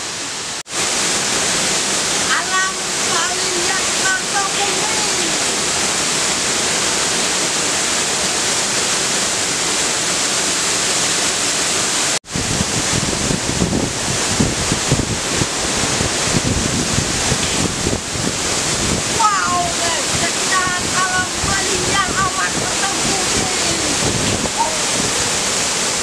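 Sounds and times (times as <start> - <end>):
waterfall pouring onto rocks: 0.7 - 26.0
wind buffeting microphone: 12.2 - 26.0.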